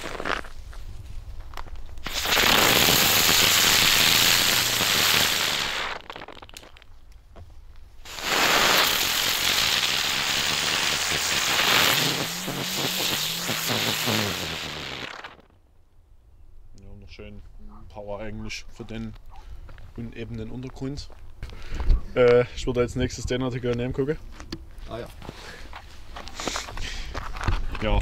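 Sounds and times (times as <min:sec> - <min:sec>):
fireworks hissing: 0:02.0 - 0:06.6, 0:08.0 - 0:15.5.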